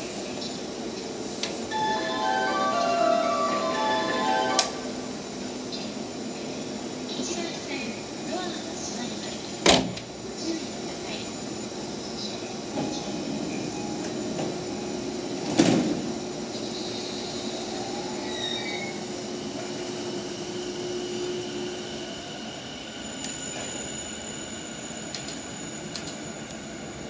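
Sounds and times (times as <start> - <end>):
train running hum: 0.0 - 27.0
train doors shutting thud: 9.6 - 10.1, 15.4 - 16.1.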